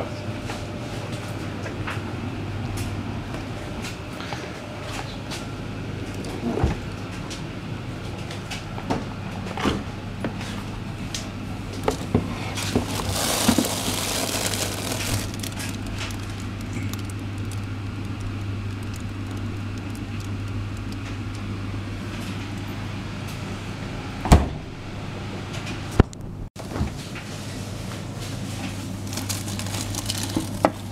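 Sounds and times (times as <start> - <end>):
refrigerator hum: 0.0 - 30.9
plastic rustling: 11.8 - 21.5, 28.5 - 30.9.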